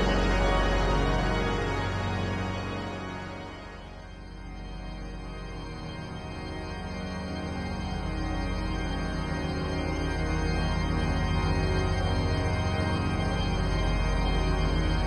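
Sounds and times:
low organ chord: 0.0 - 6.8.

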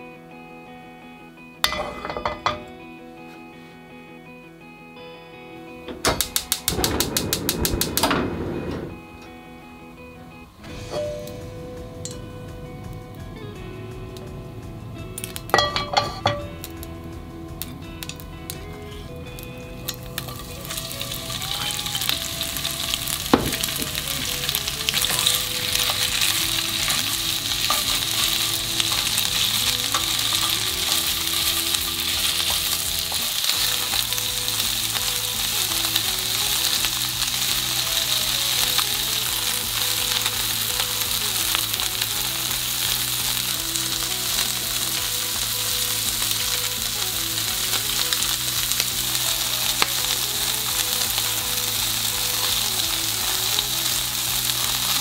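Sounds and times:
meat sizzling in frying pan: 15.2 - 55.0
chopsticks tapping pan: 19.9 - 45.1.

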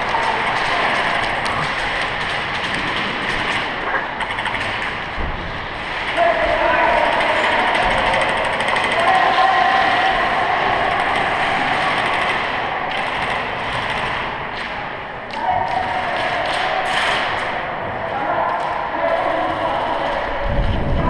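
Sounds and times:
airsoft guns firing: 0.0 - 17.8.

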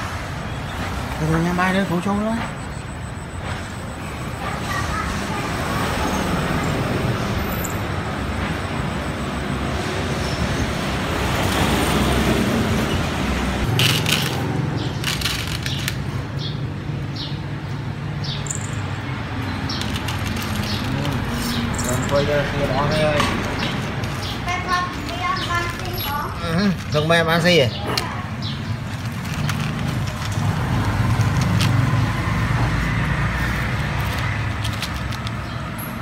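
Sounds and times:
traffic: 0.0 - 36.0
faint voices: 20.6 - 23.6.

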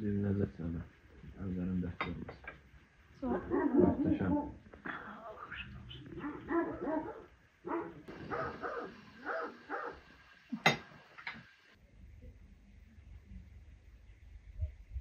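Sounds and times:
faint low hum: 0.0 - 15.0
dog yelping and barking: 6.2 - 10.0.

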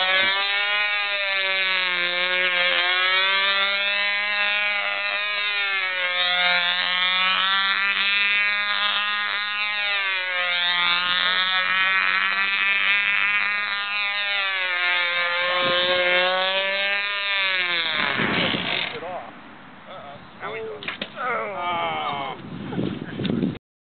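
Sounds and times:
model airplane engine whine: 0.0 - 19.0.

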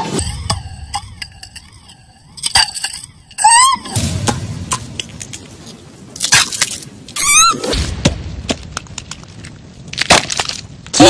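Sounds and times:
low rumble: 0.2 - 10.0
high warbling squeaky cry: 3.2 - 4.1, 7.2 - 7.8.

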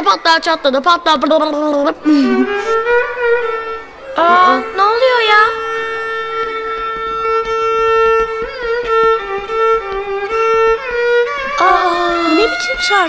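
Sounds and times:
violin playing held notes: 1.7 - 13.0.

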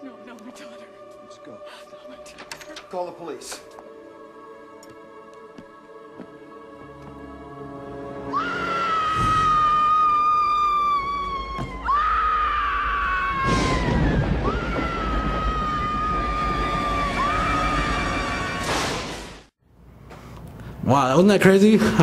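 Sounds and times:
dramatic film music: 0.0 - 19.5
woman screaming: 8.3 - 17.8.

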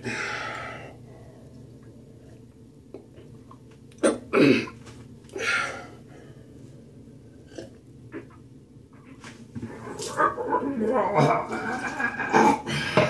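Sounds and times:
man's harsh throat noises: 11.2 - 13.0.

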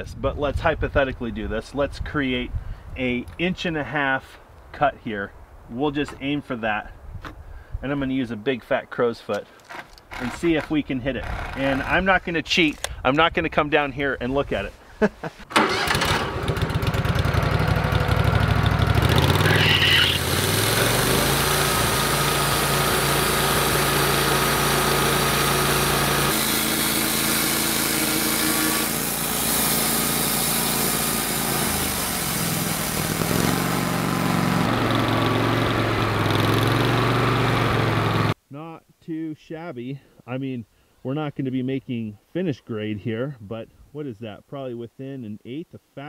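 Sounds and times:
band blade sawing log: 9.7 - 11.9, 19.2 - 38.4
sawmill engine revving: 10.1 - 12.0, 15.5 - 38.4.

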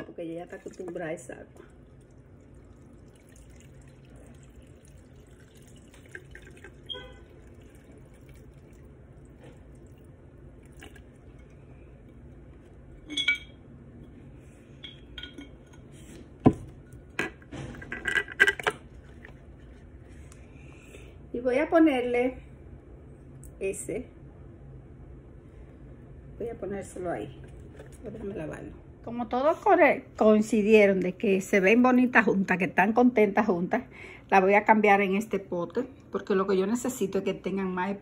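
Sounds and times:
water trickling into glass jar: 0.4 - 12.4
clinks and taps against glass: 13.0 - 13.6, 14.8 - 15.7.

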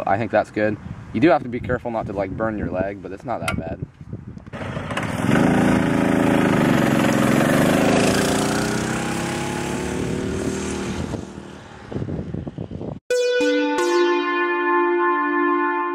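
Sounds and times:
mini bike engine running: 4.5 - 10.7
music: 13.1 - 15.9.

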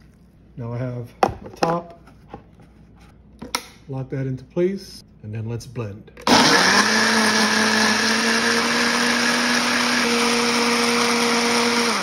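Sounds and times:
blender motor whirring: 6.2 - 12.0.

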